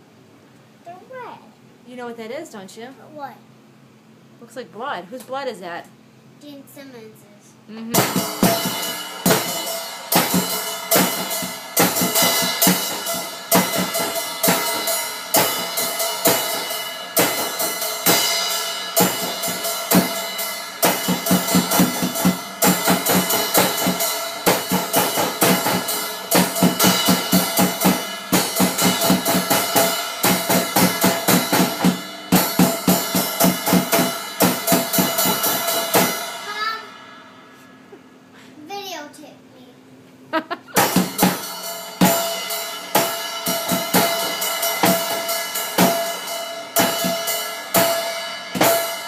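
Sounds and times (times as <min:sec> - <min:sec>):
drum kit playing: 0:07.8 - 0:38.3, 0:40.4 - 0:49.0
cymbals ringing: 0:08.0 - 0:37.9, 0:40.8 - 0:49.0.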